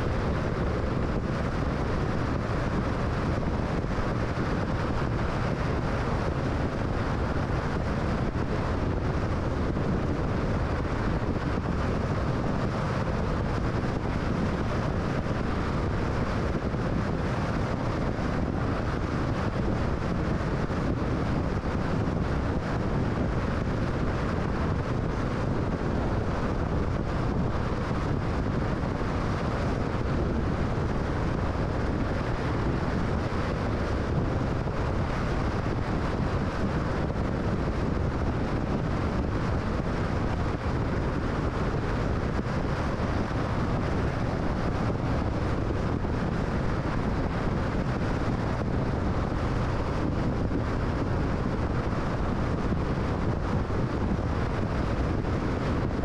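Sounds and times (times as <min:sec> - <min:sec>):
car road and wind noise: 0:00.0 - 0:56.0.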